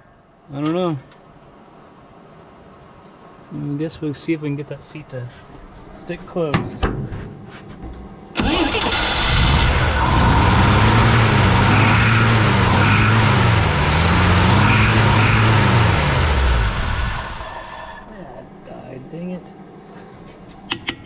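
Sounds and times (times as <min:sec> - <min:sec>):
car engine starting and revving: 0:08.4 - 0:18.0.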